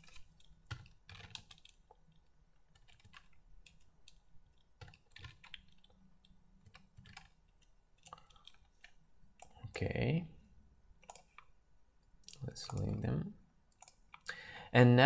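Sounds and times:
faint keyboard typing: 0.0s - 9.9s, 11.0s - 11.6s, 12.2s - 13.0s.

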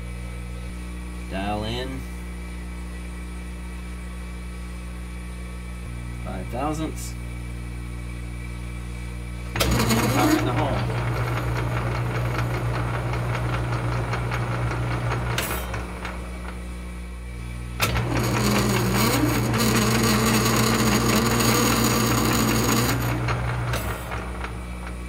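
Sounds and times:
lathe gear train humming: 9.4s - 25.0s
lathe whine: 9.4s - 25.0s.

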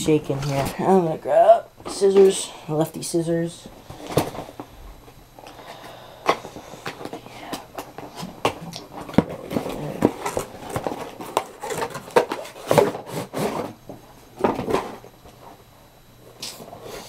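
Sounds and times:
packaging rustling: 7.8s - 13.7s.

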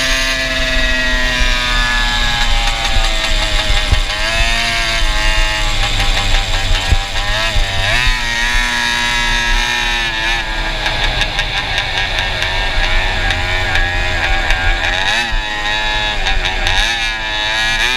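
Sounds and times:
go-kart engine running hard: 0.0s - 17.9s.

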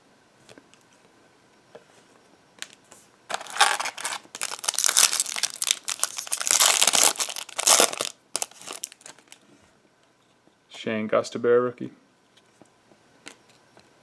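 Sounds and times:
foil wrapper crinkling and tearing: 3.3s - 9.4s.

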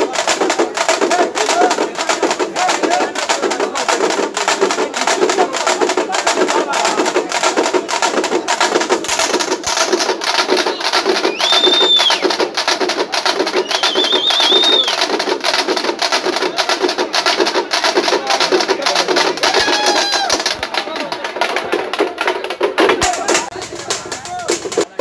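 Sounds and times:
frame drums fast beat: 0.0s - 25.0s
shrill whistle: 10.7s - 12.4s, 13.5s - 15.0s.

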